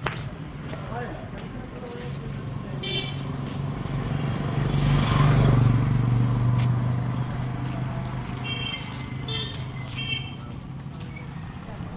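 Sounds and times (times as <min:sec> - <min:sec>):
vehicle engine passing by: 0:03.7 - 0:10.0.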